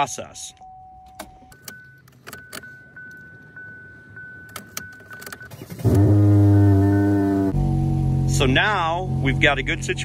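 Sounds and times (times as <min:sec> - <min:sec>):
car key jangling in ignition: 0:01.0 - 0:05.9.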